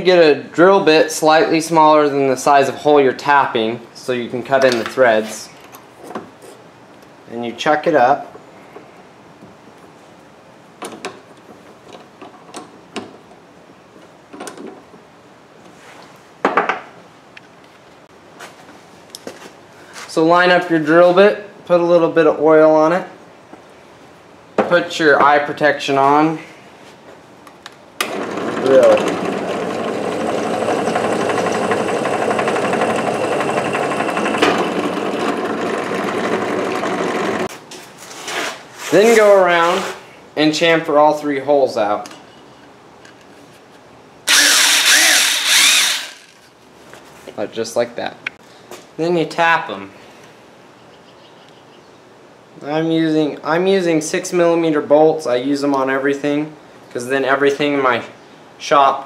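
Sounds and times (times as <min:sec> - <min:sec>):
drill press whirring and grinding: 0:28.0 - 0:37.5, 0:44.3 - 0:46.5.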